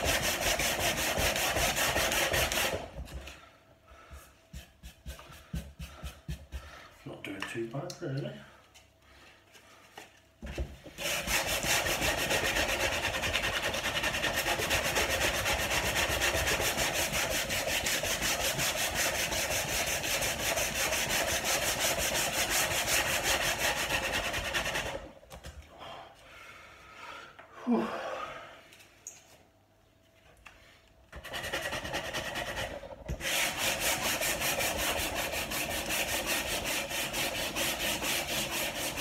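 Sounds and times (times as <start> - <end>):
sandpaper rubbing on wood: 0.0 - 2.9, 11.0 - 25.1, 31.2 - 39.0.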